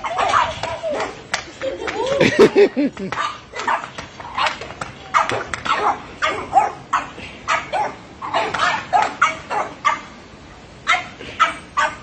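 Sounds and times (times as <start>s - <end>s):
small dogs barking excitedly: 0.0s - 1.2s, 3.0s - 10.2s, 10.8s - 12.0s.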